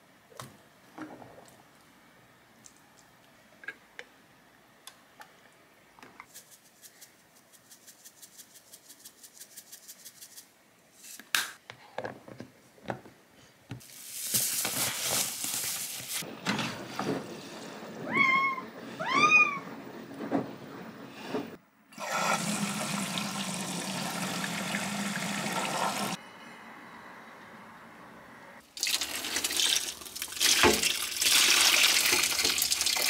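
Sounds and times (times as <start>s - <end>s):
cat meowing: 18.0s - 19.7s.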